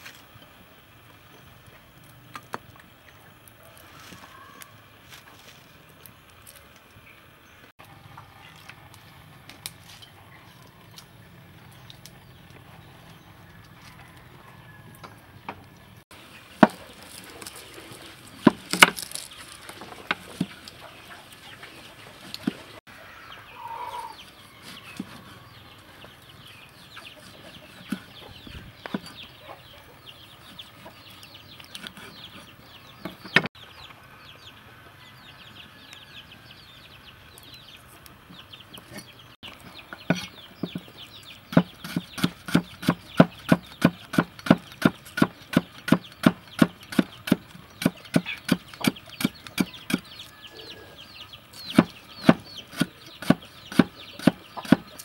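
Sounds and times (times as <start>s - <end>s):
cleaver chopping on wooden board: 18.4s - 19.1s, 41.5s - 50.0s, 51.7s - 54.8s.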